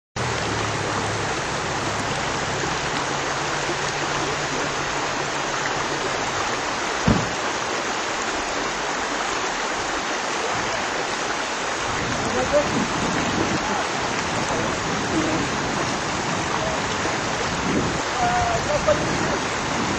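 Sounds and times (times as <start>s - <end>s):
low engine hum: 0.2s - 7.4s
steady rushing noise: 0.2s - 19.9s
thump: 7.0s - 7.4s.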